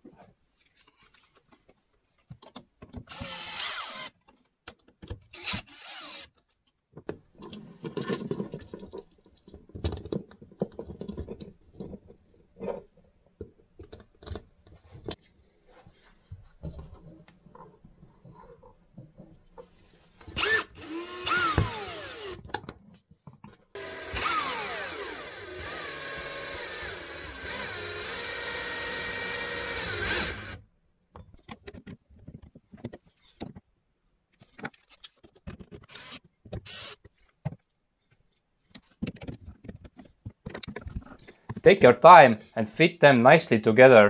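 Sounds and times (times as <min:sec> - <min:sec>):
cordless drill driving screws: 0:03.1 - 0:04.1, 0:05.3 - 0:06.3, 0:20.3 - 0:22.5, 0:23.8 - 0:30.6, 0:35.9 - 0:37.0.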